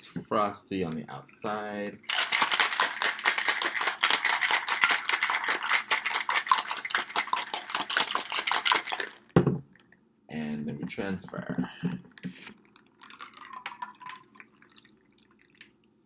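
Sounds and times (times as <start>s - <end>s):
ice rattling in cocktail shaker: 2.1s - 9.4s, 12.8s - 15.7s.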